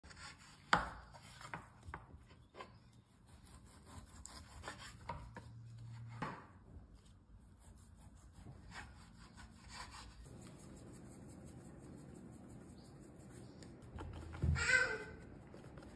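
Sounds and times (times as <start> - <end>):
knife sawing through ribs: 3.3 - 5.1, 7.6 - 10.3.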